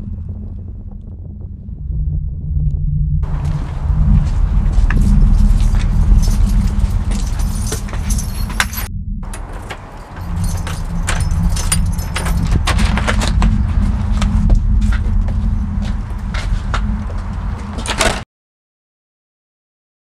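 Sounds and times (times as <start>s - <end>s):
low rumble: 0.0s - 18.2s
keys jangling in lock: 4.9s - 13.2s.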